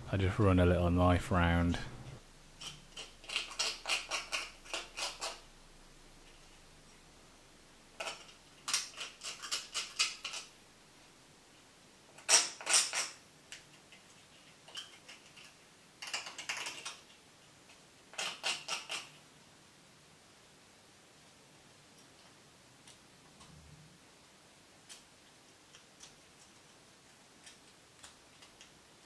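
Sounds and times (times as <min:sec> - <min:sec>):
knife scraping plastic: 0:02.6 - 0:05.5, 0:08.0 - 0:10.5.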